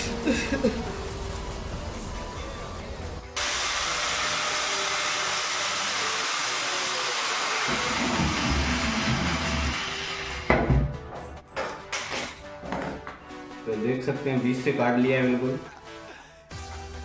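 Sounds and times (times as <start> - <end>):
angle grinder cutting: 3.4 - 10.6.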